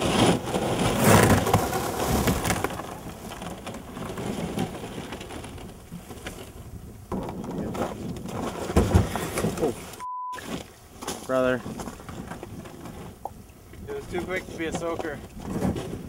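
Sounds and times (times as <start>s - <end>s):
ice cracking: 0.0s - 6.6s
river ice crunching and grinding: 0.0s - 13.2s.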